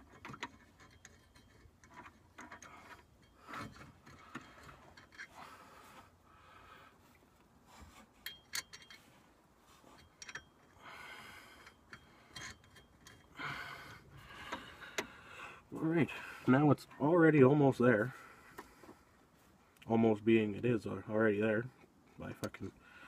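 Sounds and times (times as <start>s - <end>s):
small metal clicks: 0.0s - 5.3s, 8.2s - 9.1s, 9.9s - 10.8s, 11.4s - 15.2s.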